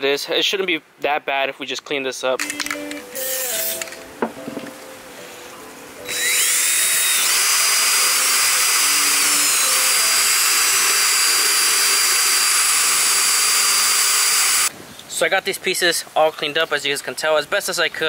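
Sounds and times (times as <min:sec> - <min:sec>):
aerosol spray hiss: 0:03.2 - 0:03.9
drill wire brush scrubbing metal: 0:06.1 - 0:14.7.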